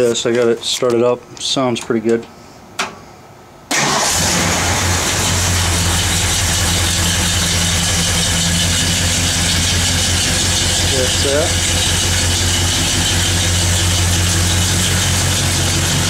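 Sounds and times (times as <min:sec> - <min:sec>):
engine idling: 0:03.8 - 0:16.0.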